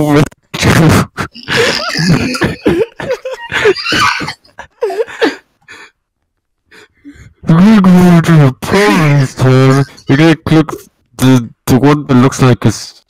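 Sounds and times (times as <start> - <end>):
short wordless vocal noises: 1.1 - 2.9, 8.7 - 11.0
person coughing: 1.3 - 5.4.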